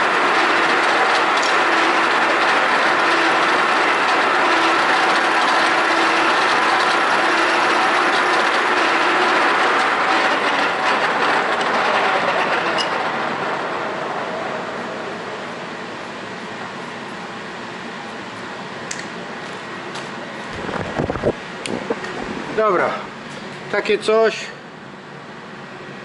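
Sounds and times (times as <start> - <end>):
milling machine cutting metal: 0.0 - 17.1
sharp click: 18.9 - 19.1.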